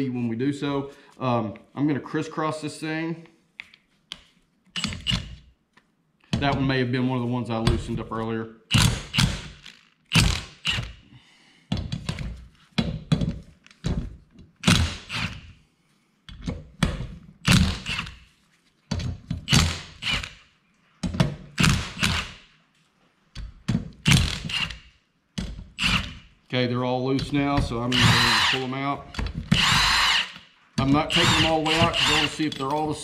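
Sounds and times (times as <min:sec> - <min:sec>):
impact wrench hammering: 0:08.7 - 0:11.0, 0:27.6 - 0:28.7, 0:29.4 - 0:32.6.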